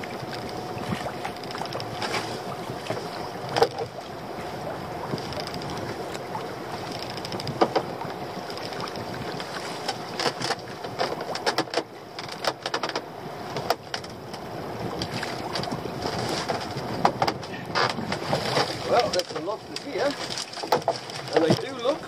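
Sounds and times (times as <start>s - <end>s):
sea: 0.0s - 22.0s
wind: 0.0s - 22.0s
rope knocking on boat: 7.0s - 14.1s, 15.0s - 22.0s.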